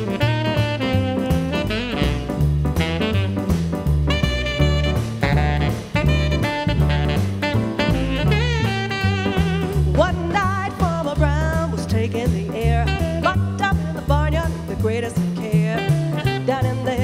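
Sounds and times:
tenor saxophone: 0.0 - 10.6, 12.7 - 13.5, 15.7 - 16.9
drum kit: 0.0 - 17.0
piano: 0.0 - 17.0
walking upright bass line: 0.0 - 17.0
woman singing: 9.6 - 17.0.

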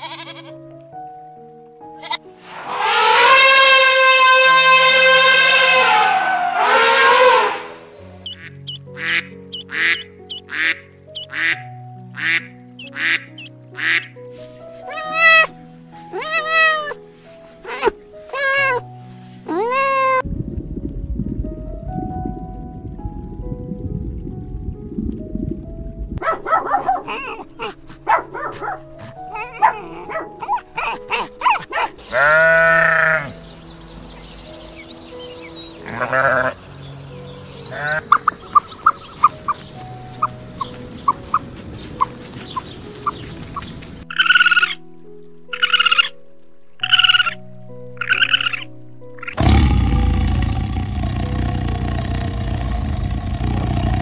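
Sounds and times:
sheep bleating: 0.0 - 0.6, 2.0 - 2.3, 32.1 - 33.4, 35.8 - 36.6, 37.7 - 38.0
background music: 0.0 - 54.0
tiger roaring: 2.5 - 7.9, 49.4 - 54.0
puppies yipping: 8.2 - 11.6, 14.8 - 17.0, 17.6 - 18.8, 26.2 - 32.6.

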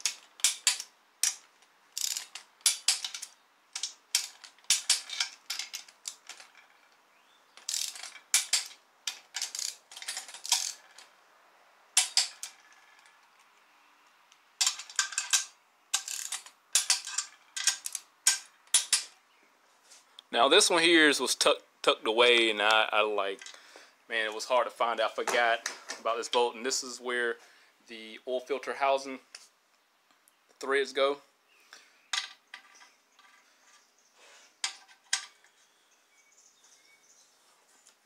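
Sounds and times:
socket wrench ratcheting: 0.0 - 6.8, 7.6 - 11.1, 12.0 - 13.1, 14.6 - 19.1.

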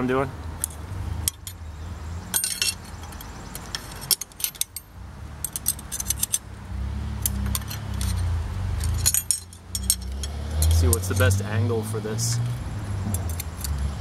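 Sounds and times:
metal wrenches clinking: 0.6 - 1.6, 2.3 - 6.4, 7.2 - 11.5, 12.3 - 13.9.

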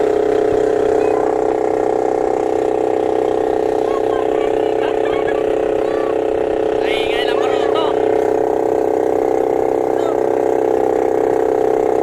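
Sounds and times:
motor boat engine droning: 0.0 - 12.0.

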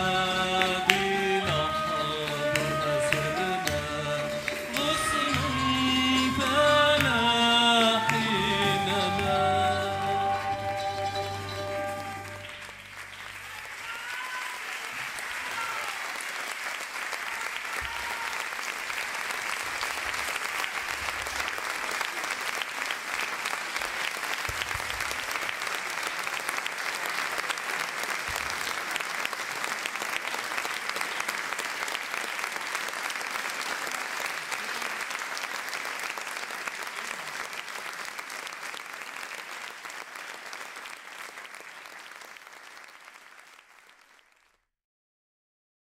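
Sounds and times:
audience applauding: 0.0 - 44.7.

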